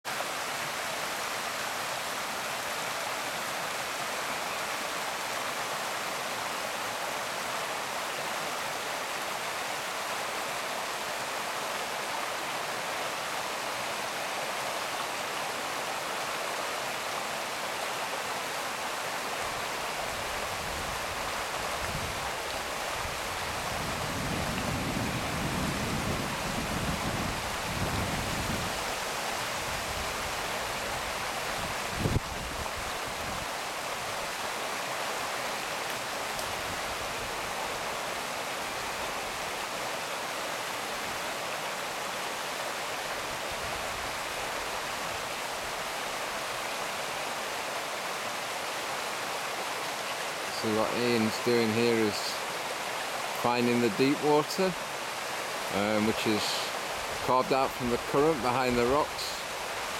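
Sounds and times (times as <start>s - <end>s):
stream rushing over stones: 0.0s - 59.9s.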